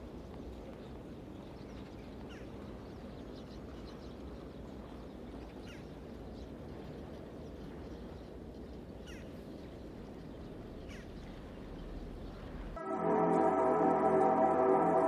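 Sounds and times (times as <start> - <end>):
bird chirps: 0.8 - 12.8
steady low rumble: 2.6 - 14.5.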